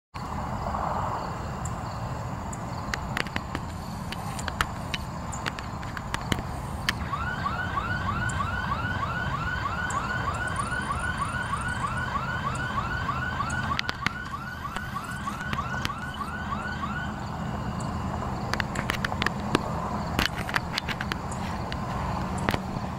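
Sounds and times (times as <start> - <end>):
electronic alarm yelping: 7.0 - 17.2.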